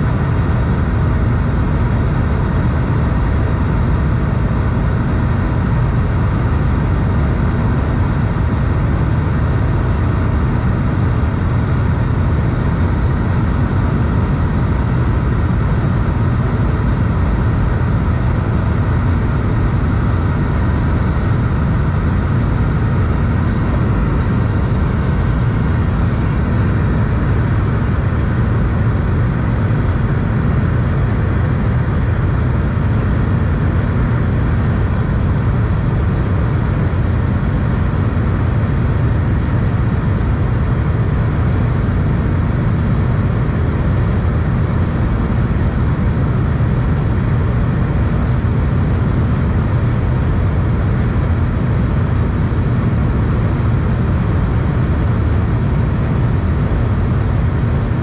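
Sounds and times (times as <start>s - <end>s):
airplane engines rumbling: 0.0s - 58.0s.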